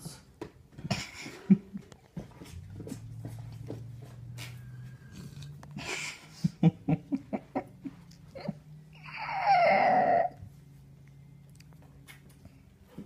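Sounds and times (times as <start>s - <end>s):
person laughing: 0.9s - 1.9s, 5.8s - 9.3s.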